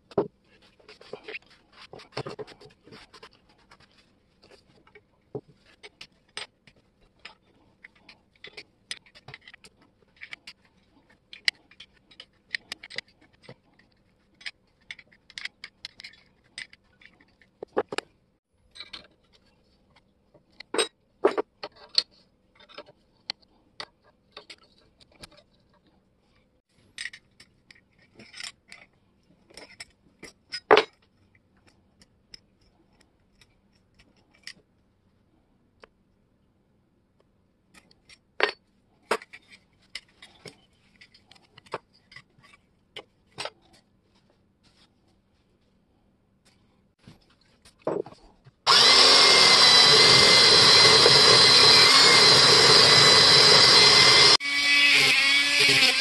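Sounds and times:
metal parts clinking and scraping: 0:05.6 - 0:17.9, 0:18.7 - 0:19.4, 0:26.9 - 0:31.1.

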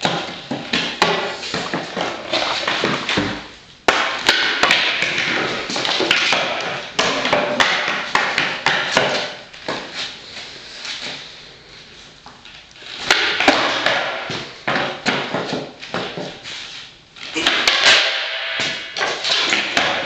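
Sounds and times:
skateboard wheels rolling: 0:00.1 - 0:03.5.

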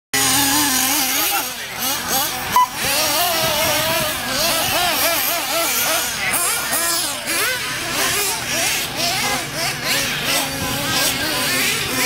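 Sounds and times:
rc car motors whining: 0:00.2 - 0:12.0.

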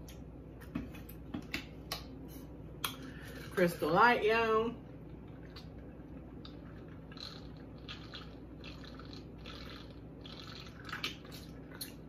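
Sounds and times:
person gulping water: 0:05.0 - 0:12.0.

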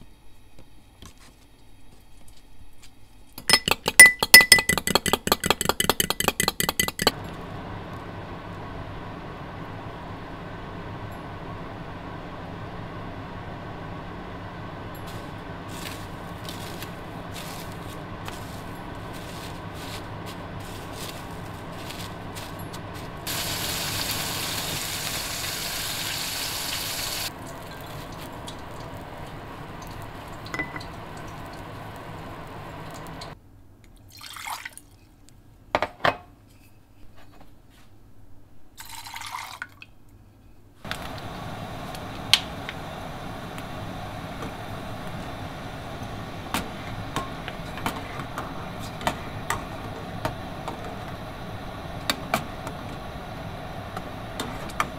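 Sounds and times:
steady hum: 0:04.3 - 0:26.0, 0:26.6 - 0:33.4, 0:40.8 - 0:54.9
deep-frying oil hissing: 0:07.5 - 0:33.4, 0:40.8 - 0:54.9
saucepan hissing on stove: 0:15.1 - 0:33.4, 0:40.9 - 0:54.9.

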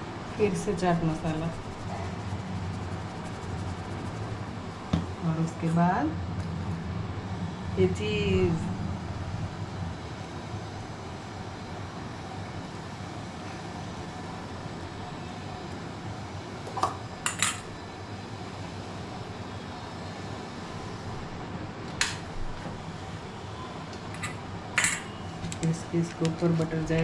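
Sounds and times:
background hum: 0:00.0 - 0:15.0
utensils clinking on a plate: 0:17.3 - 0:17.7, 0:24.2 - 0:25.2.

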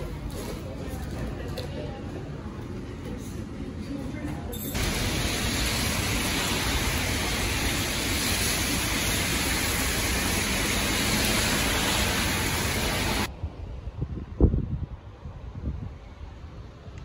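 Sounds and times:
heavy rain on wet pavement: 0:04.8 - 0:13.3.

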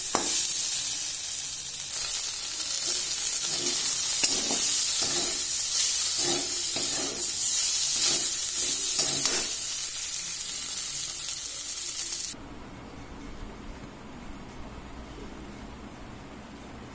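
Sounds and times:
okra sizzling in oil: 0:00.0 - 0:12.4
metal spatula scraping pan: 0:02.8 - 0:09.6.

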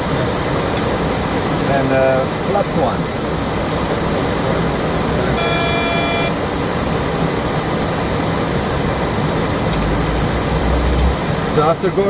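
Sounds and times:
airflow and air conditioning rushing: 0:00.0 - 0:12.0
short electronic tone: 0:05.3 - 0:06.4.

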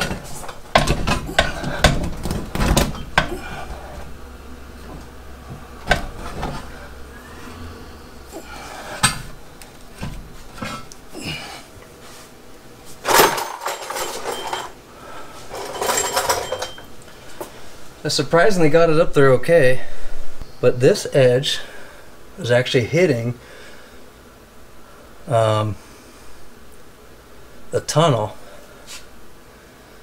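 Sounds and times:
metal case knocking and clunking: 0:00.0 - 0:03.3.

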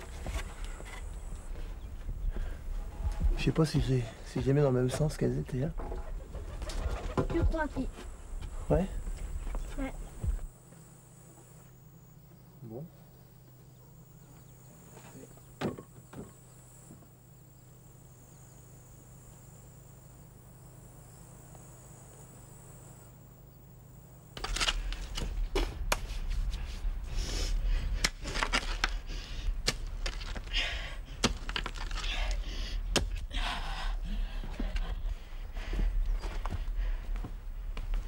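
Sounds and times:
faint insect chirring: 0:00.0 - 0:25.6, 0:26.5 - 0:38.0
digging tool striking earth and stones: 0:29.6 - 0:30.5, 0:31.2 - 0:32.1, 0:32.9 - 0:33.2.

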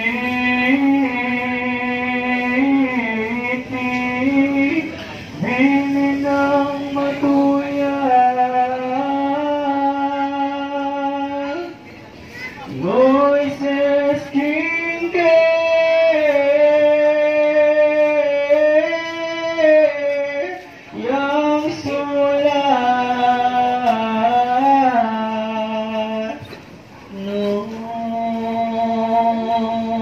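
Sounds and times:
person singing long held notes: 0:00.0 - 0:11.8, 0:27.1 - 0:30.0.

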